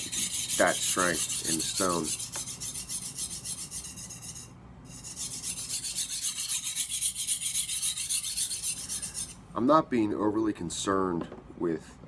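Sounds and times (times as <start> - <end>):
knife rasping on whetstone: 0.0 - 9.4.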